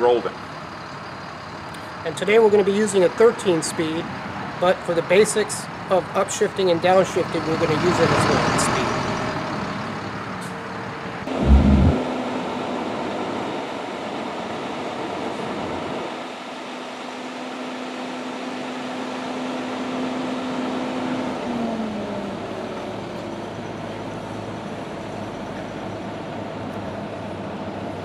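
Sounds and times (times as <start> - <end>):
truck engine droning: 7.3 - 12.5
loud low thump: 11.3 - 12.1.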